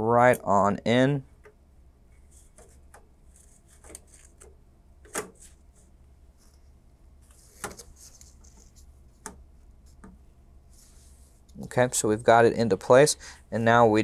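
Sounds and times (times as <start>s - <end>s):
gloved hands rustling: 5.2s - 11.6s.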